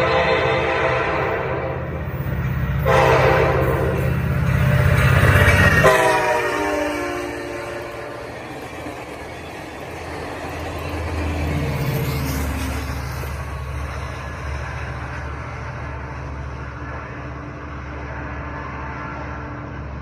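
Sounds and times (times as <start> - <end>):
train horn: 0.0 - 2.0, 2.8 - 4.2, 5.6 - 8.4
diesel locomotive hum: 0.0 - 20.0
train wheels rumbling on rails: 0.0 - 20.0.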